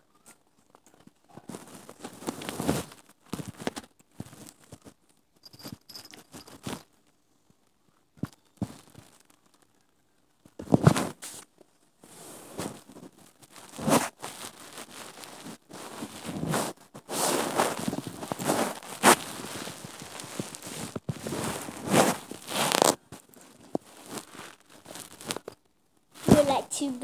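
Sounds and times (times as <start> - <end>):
phone rubbing against fur: 13.7 - 25.5.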